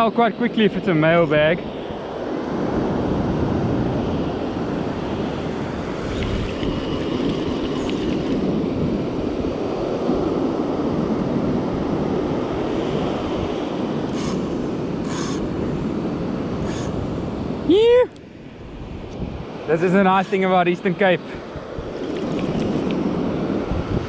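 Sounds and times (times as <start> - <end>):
wind buffeting microphone: 1.3 - 24.0.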